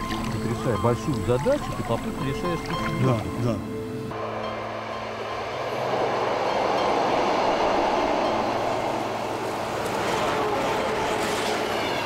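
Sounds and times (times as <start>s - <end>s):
electric train passing: 3.6s - 12.0s.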